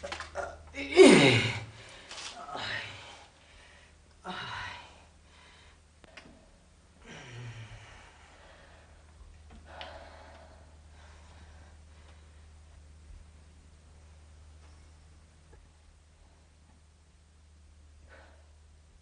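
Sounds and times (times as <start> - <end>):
faint low hum: 0.0 - 19.0.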